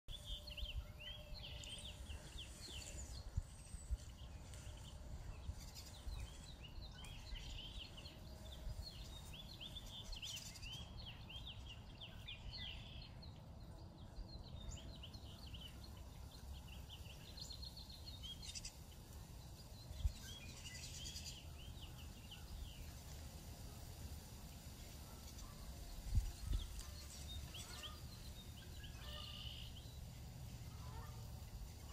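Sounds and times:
wind rumble on microphone: 0.1s - 12.0s, 25.7s - 28.8s
birds chirping in chorus: 0.1s - 31.9s.

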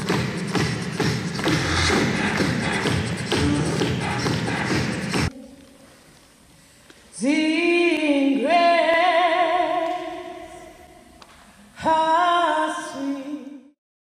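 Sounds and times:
woman singing unaccompanied: 7.1s - 10.5s, 11.8s - 13.8s.

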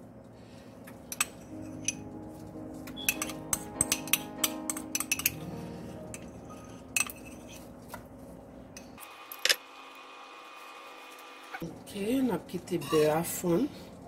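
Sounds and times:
utensil clinking and scraping: 6.2s - 8.0s.

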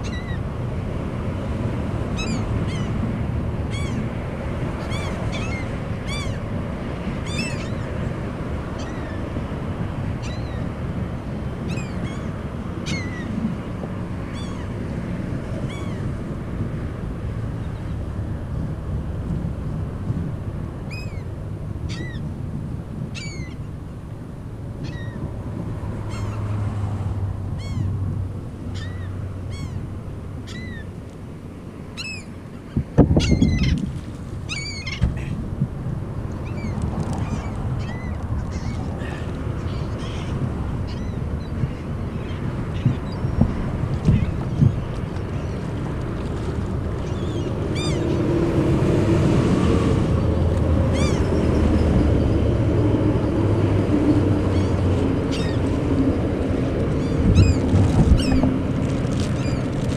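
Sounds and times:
gulls calling: 0.0s - 0.5s, 2.1s - 9.3s, 11.5s - 16.2s, 20.9s - 22.3s, 23.1s - 23.7s, 24.8s - 25.2s, 27.5s - 28.0s, 28.6s - 31.0s, 31.9s - 33.8s, 34.4s - 35.5s, 36.2s - 46.2s, 46.9s - 48.6s, 50.2s - 59.7s
wind on microphone: 0.0s - 31.0s, 32.0s - 59.9s.

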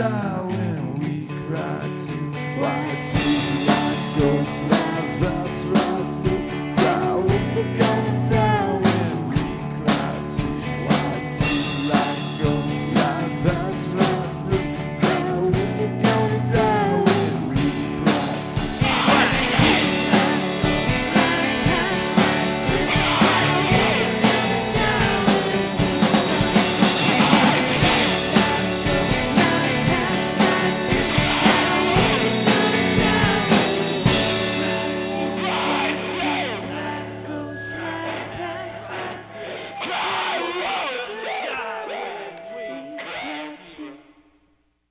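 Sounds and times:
indie rock band playing: 0.0s - 40.9s
guitars: 0.0s - 43.8s
steady drum beat: 2.8s - 36.7s.

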